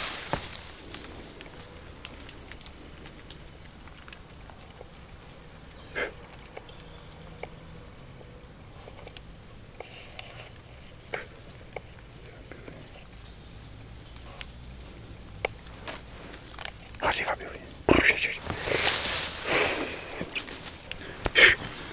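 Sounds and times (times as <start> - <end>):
rustling in leaf litter: 0.0 - 3.2, 18.2 - 21.9
loud crunches: 0.0 - 4.2.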